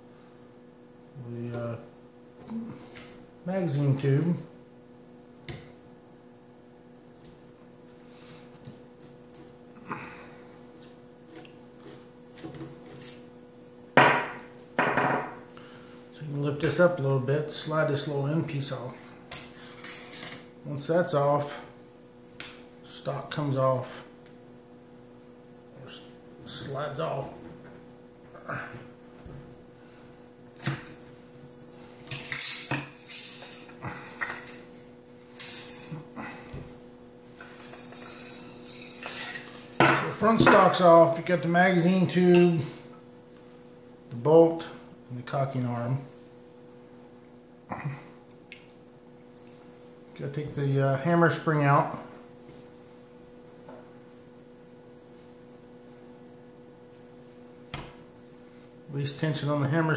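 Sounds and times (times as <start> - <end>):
steady low hum: 0.0 - 59.9
metal scraping: 37.4 - 39.6.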